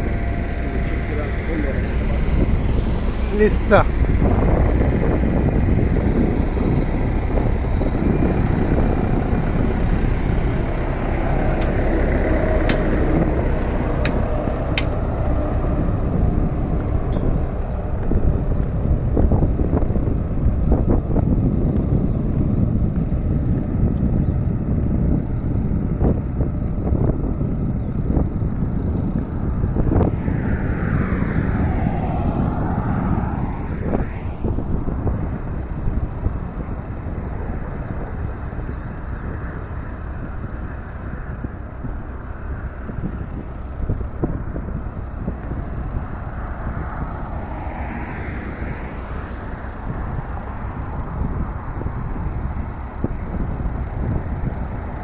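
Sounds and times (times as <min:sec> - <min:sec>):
vehicle rumble on road: 0:00.0 - 0:55.0
wind noise: 0:00.0 - 0:55.0
high whooshing sweep: 0:29.5 - 0:35.5.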